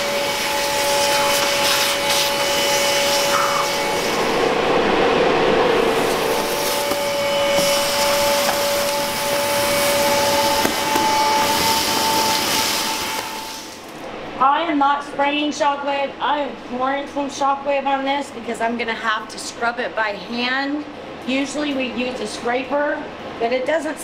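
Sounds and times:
vacuum cleaner whining motor: 0.0s - 14.1s.

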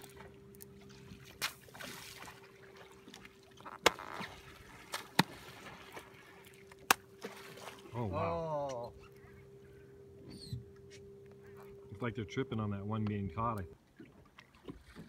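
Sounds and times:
water lapping: 0.0s - 15.0s
rays slapping water surface: 0.8s - 7.9s.

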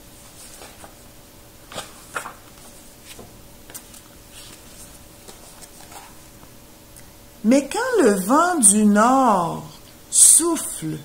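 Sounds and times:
book pages rustling: 0.1s - 6.6s.

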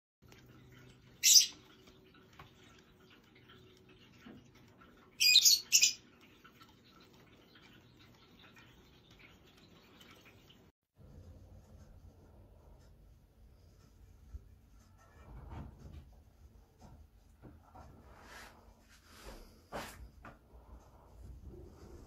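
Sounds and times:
lovebirds shrill calls: 1.2s - 1.6s, 5.2s - 6.0s.

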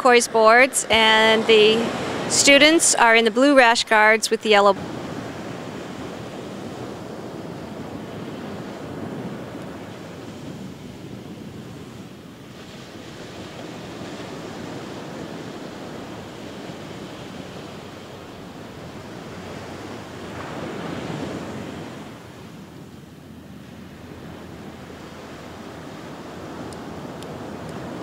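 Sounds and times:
wind buffeting microphone: 0.0s - 3.9s, 4.7s - 28.0s
ocean surf breaking: 0.0s - 28.0s.

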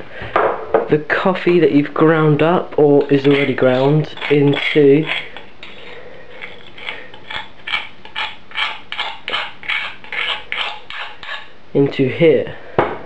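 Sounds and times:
coffee scraped from stone mortar: 2.9s - 11.5s.

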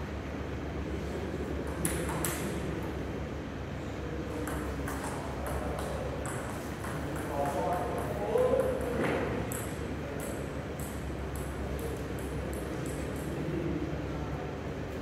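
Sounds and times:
low hall hum: 0.0s - 15.0s
table tennis ball hitting bats: 1.6s - 2.6s, 4.3s - 13.4s.

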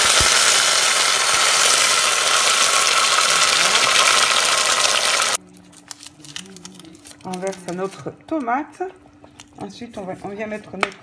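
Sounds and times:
tomato sizzling in hot oil: 0.0s - 5.4s.

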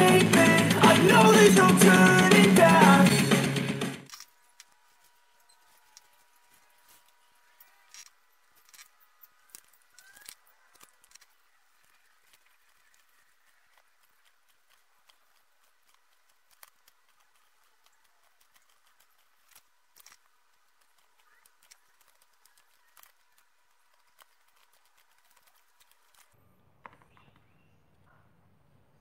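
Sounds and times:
craft knife scoring plastic: 7.9s - 27.4s.

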